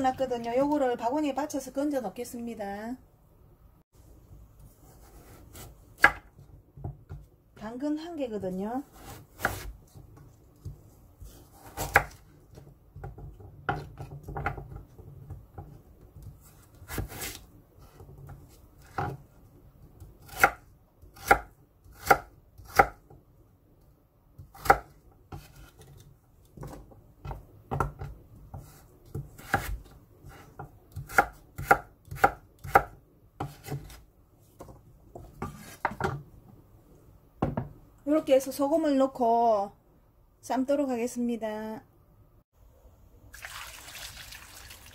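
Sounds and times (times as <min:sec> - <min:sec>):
knife chopping on wooden board: 0:04.8 - 0:07.3, 0:08.9 - 0:14.9, 0:20.2 - 0:23.1, 0:24.4 - 0:34.0, 0:34.6 - 0:36.2.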